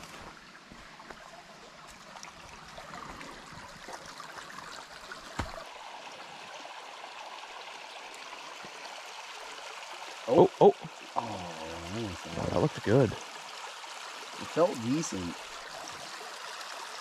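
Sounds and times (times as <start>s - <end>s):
stream babbling over stones: 0.0s - 17.0s.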